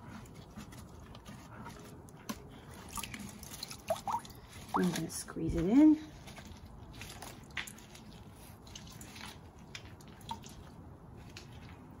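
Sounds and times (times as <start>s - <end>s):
wet fabric squishing: 0.0s - 12.0s
dye dripping into bucket: 2.0s - 5.1s, 6.3s - 12.0s.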